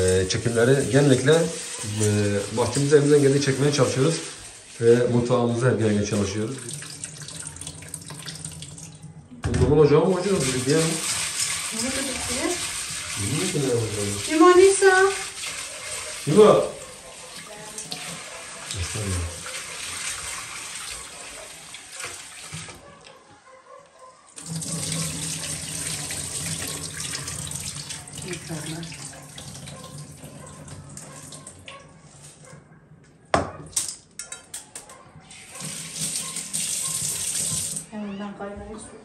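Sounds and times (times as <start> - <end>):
tap water running into a sink: 0.0 - 22.8, 24.4 - 31.8, 35.3 - 37.9.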